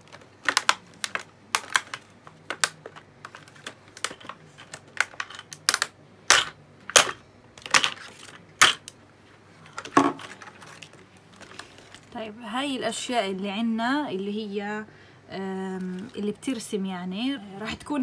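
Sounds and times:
plastic blister pack crackling: 0.0 - 9.0, 9.6 - 12.2.

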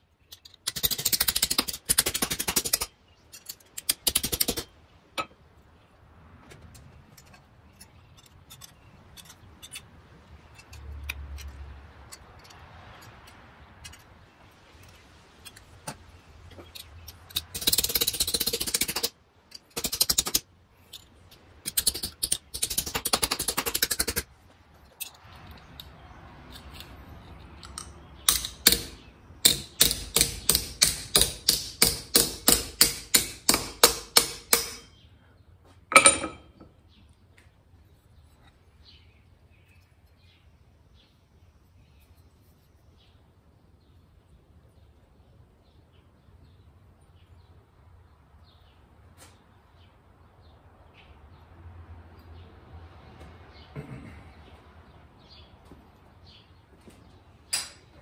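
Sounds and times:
hammer striking steel on anvil: 28.3 - 35.0.

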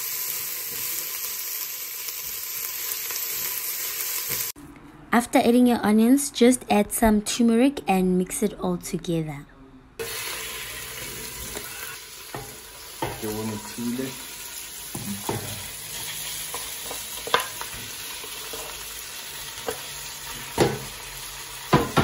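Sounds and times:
meat sizzling in hot oil: 0.0 - 4.6, 10.0 - 22.0.

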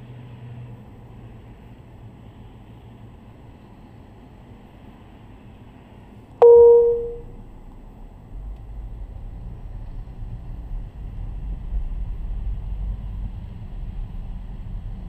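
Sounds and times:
vehicle road noise: 0.0 - 6.3, 7.1 - 15.0
loud ringing ding: 6.4 - 7.4.

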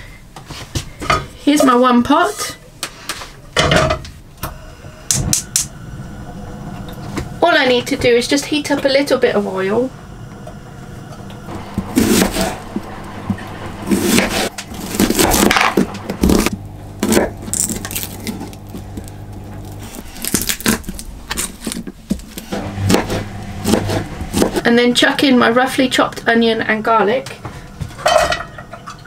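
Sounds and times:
low steady hum: 1.0 - 29.0
knife chopping on plastic board: 22.9 - 24.6.

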